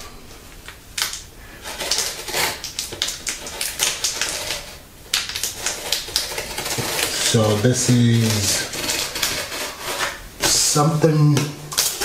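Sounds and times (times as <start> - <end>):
fingers scratching packing tape: 1.6 - 10.8.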